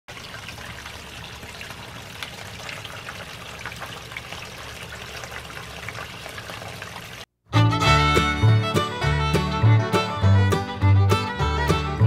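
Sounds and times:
water trickling with small splashes: 0.1s - 7.3s.

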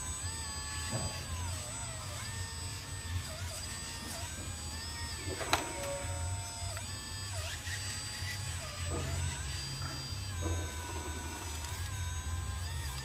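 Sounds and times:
toy excavator electric motors whirring: 0.0s - 13.0s.

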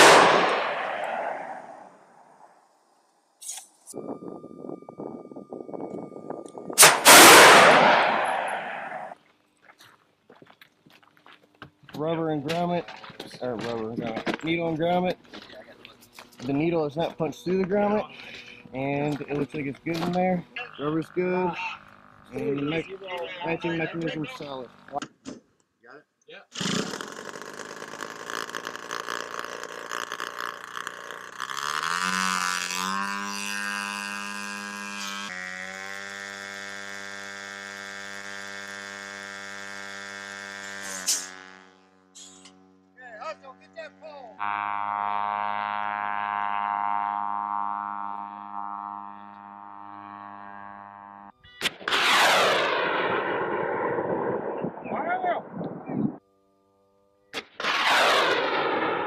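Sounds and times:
sharp launch crack: 0.0s - 1.8s, 6.8s - 9.2s, 51.6s - 55.6s, 57.3s - 59.0s
faint steady tone: 1.7s - 6.8s
missile motor rushing roar: 6.4s - 9.2s, 44.7s - 56.2s, 57.6s - 59.0s
small piston engine running: 20.4s - 24.9s, 26.6s - 51.4s.

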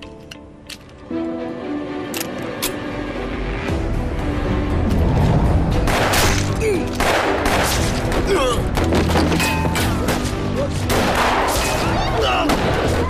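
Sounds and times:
dramatic music score: 0.0s - 13.0s
gunshots: 5.8s - 9.4s, 10.9s - 13.0s.

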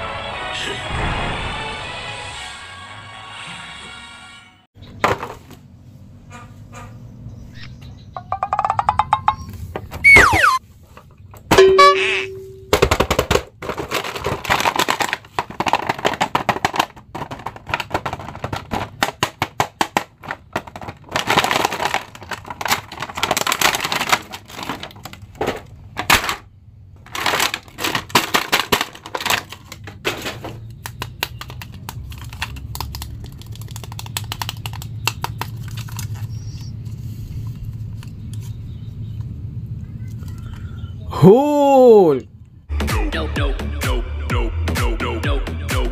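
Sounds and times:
plastic packaging crinkling: 13.6s - 26.4s, 27.0s - 36.7s.

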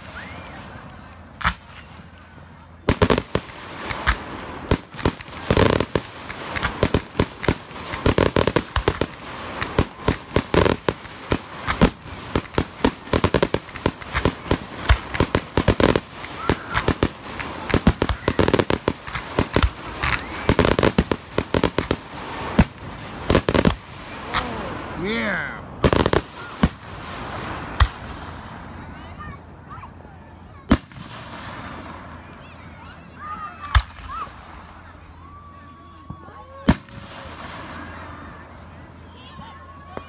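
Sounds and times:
fireworks bangs and crackles: 0.0s - 40.0s
fireworks booms: 2.8s - 25.0s, 25.8s - 28.9s, 30.6s - 32.3s, 36.1s - 38.6s.

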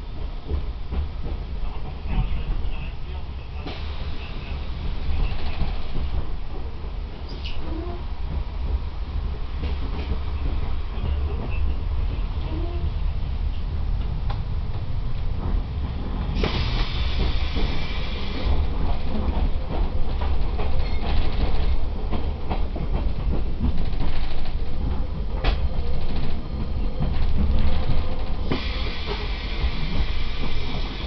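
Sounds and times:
train rumbling: 0.0s - 31.0s
hiss: 3.5s - 6.1s, 16.3s - 19.2s, 27.6s - 31.0s.

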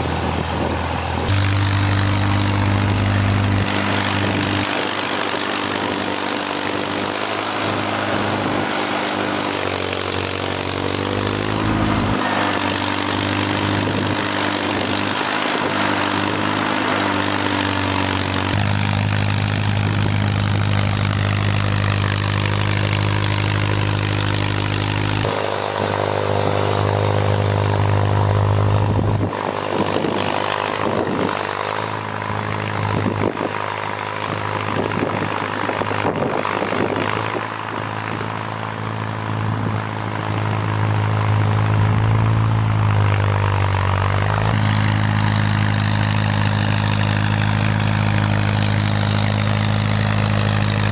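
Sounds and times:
tractor engine running: 0.0s - 50.9s.

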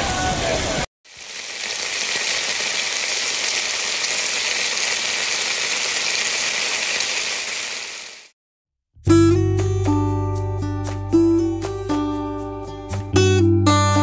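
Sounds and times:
meat sizzling on grill: 1.1s - 8.3s.

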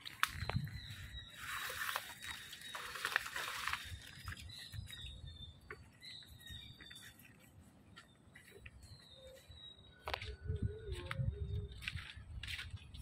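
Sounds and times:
leaves rustling: 0.0s - 5.0s
footsteps on boardwalk: 3.6s - 13.0s.

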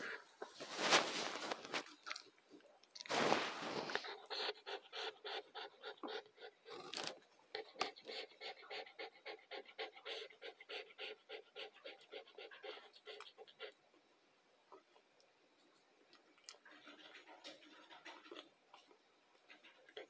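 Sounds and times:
loud rustle: 0.6s - 1.9s, 3.1s - 4.0s.

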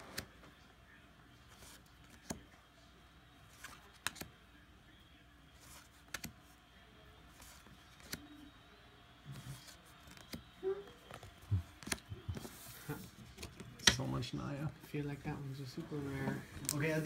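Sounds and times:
trading cards clicking: 3.6s - 4.3s, 6.0s - 6.3s, 7.9s - 8.2s, 9.6s - 10.4s.

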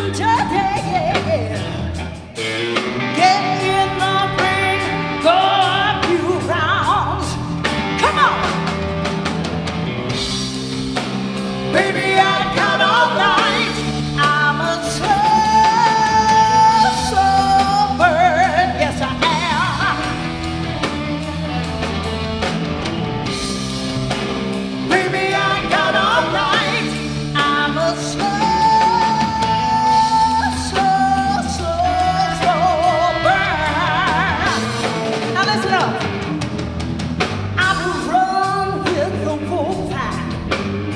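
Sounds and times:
woman singing: 0.0s - 2.0s, 3.1s - 8.7s, 11.7s - 20.4s, 24.9s - 36.1s, 37.6s - 40.5s
drum kit: 0.0s - 40.9s
electric bass: 0.0s - 40.9s
electric guitar: 0.0s - 40.9s.

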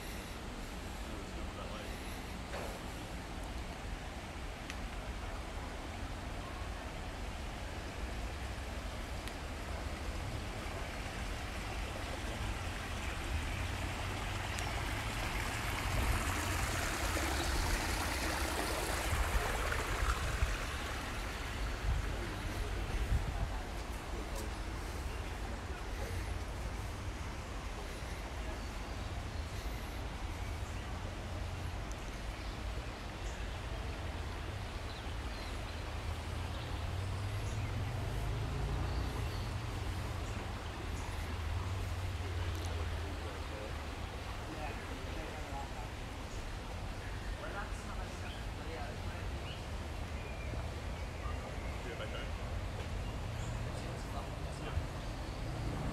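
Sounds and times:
faint hiss: 0.0s - 55.9s
running water rushing: 0.0s - 55.9s.

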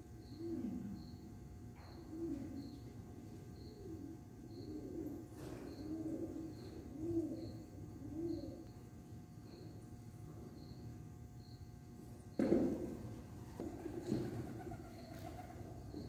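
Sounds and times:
pigeon cooing: 0.3s - 1.2s, 1.8s - 2.9s, 3.6s - 8.7s, 13.1s - 16.0s.

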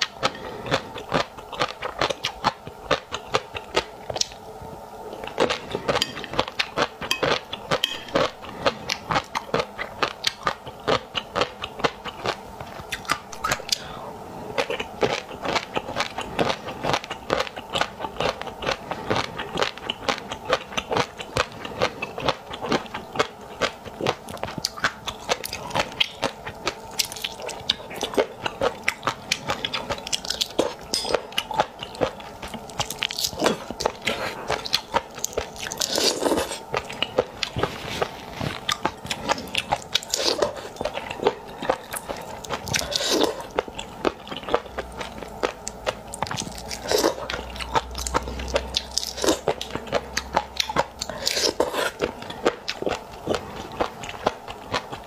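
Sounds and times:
person chewing seafood: 0.0s - 55.0s.

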